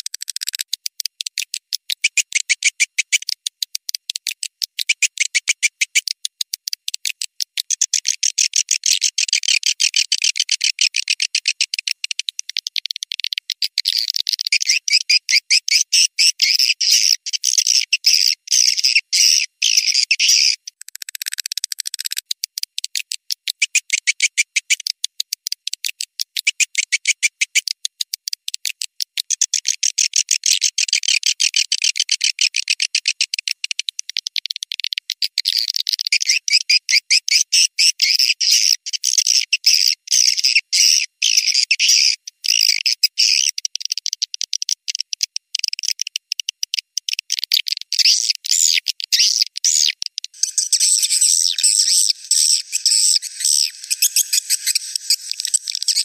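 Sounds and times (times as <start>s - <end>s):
swiftlets twittering: 50.4s - 56.0s.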